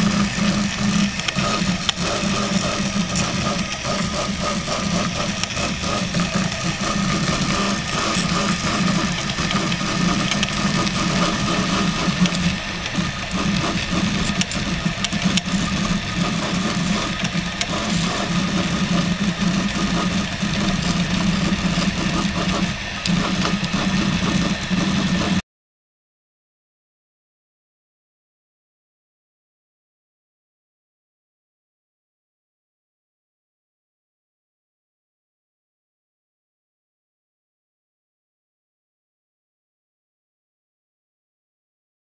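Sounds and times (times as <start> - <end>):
steady low hum: 0.0 - 25.4
stepper motors whirring: 0.0 - 25.4.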